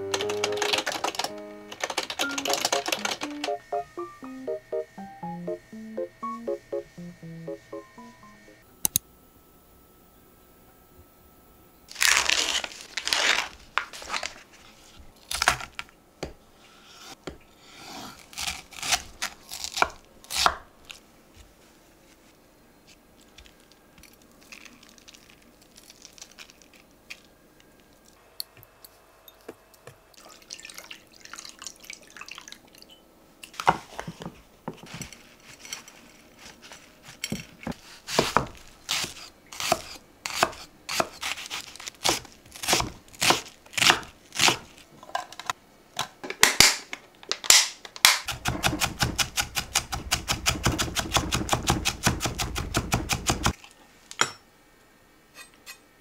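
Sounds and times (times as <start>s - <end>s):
faint handling sounds: 33.5s - 38.8s.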